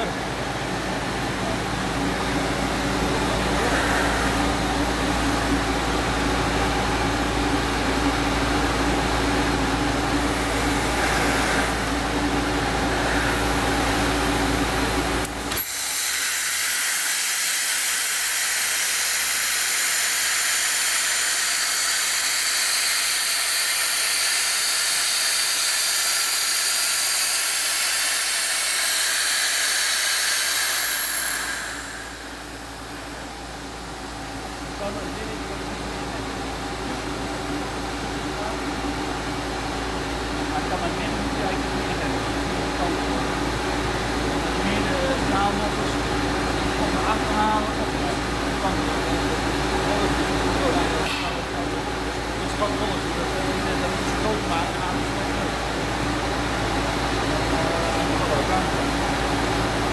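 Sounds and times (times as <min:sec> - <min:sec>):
blast machine hum and whine: 0:00.0 - 0:59.9
loud hiss of abrasive blasting: 0:15.4 - 0:33.1.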